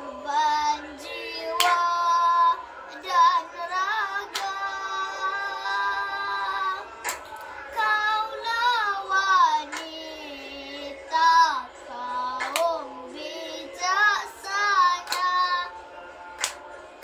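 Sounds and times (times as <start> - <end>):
child singing a chant: 0.0 - 7.1, 7.7 - 15.8
sharp hand claps: 1.5 - 1.9, 4.3 - 4.6, 7.0 - 7.5, 9.7 - 10.0, 12.4 - 12.8, 15.0 - 15.5, 16.3 - 16.9.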